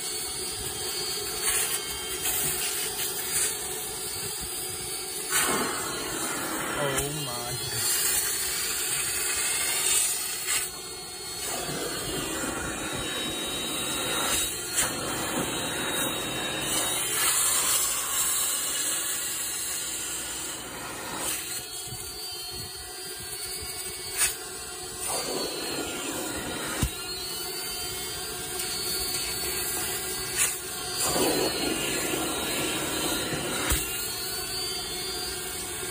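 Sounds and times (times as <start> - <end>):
extractor suction hiss: 5.2 - 8.3, 30.2 - 34.0.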